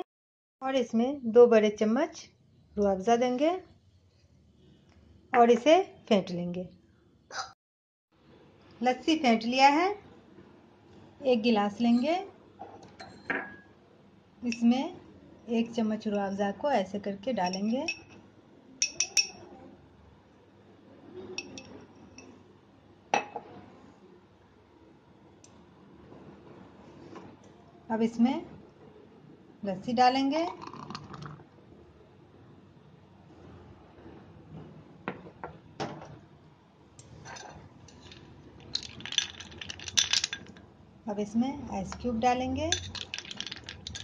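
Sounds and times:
spoon and ice cubes clinking: 18.8s - 19.4s, 37.3s - 40.6s, 42.7s - 44.0s
spoon clinking against glass: 18.8s - 19.5s, 21.4s - 22.3s, 42.7s - 44.0s.

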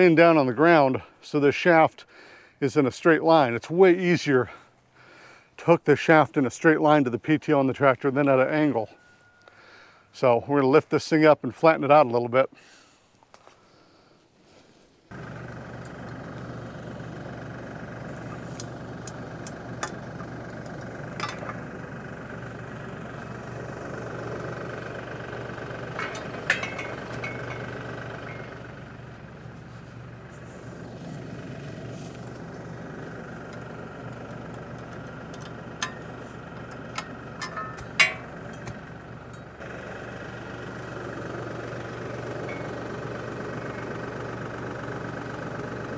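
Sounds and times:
diesel engine idling: 15.1s - 45.9s
sharp metal clinks: 26.0s - 28.8s, 37.0s - 38.7s.

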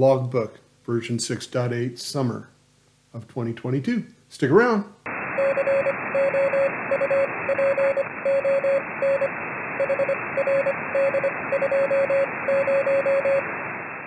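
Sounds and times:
steady radio hiss: 0.0s - 14.0s
morse code tone: 5.4s - 13.5s.

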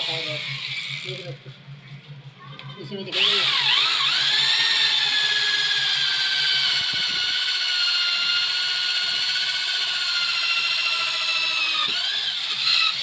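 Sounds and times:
electric drill whining: 3.1s - 13.0s.

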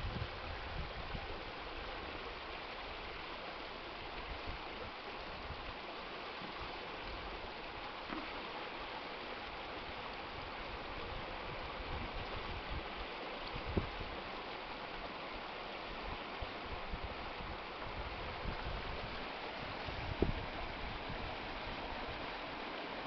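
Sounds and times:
wind buffeting microphone: 0.0s - 1.4s, 13.6s - 14.2s, 16.1s - 22.3s
strong water current rushing: 0.0s - 23.0s.

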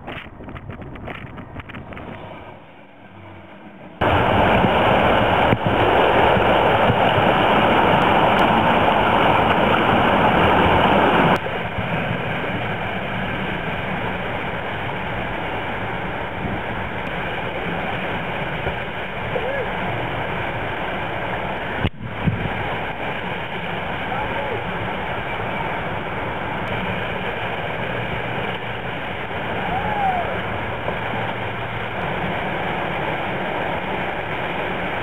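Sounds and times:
faint train rumble: 0.0s - 35.0s
rushing whitewater: 1.6s - 35.0s.

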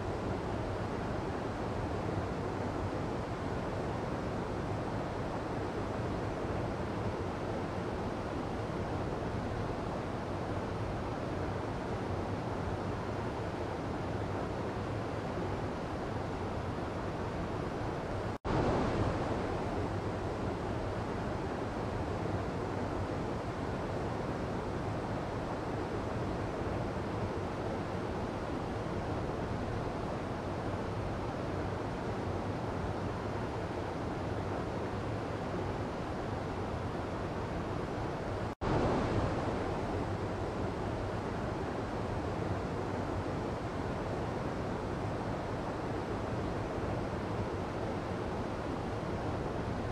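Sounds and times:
stream rushing over boulders: 18.5s - 22.3s, 28.1s - 49.9s.

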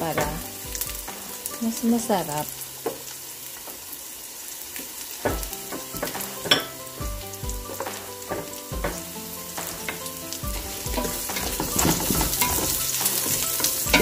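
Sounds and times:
soft background music: 0.0s - 4.2s, 4.8s - 14.0s
vegetables sizzling in hot oil: 0.0s - 14.0s.

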